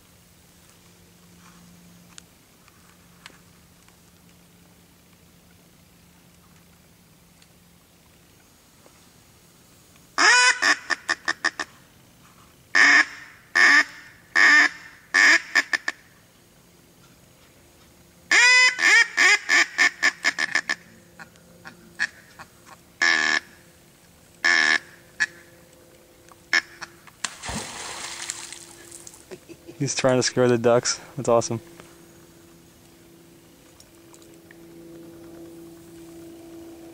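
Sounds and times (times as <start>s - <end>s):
duck quacking: 22.0s - 23.5s, 24.4s - 25.4s.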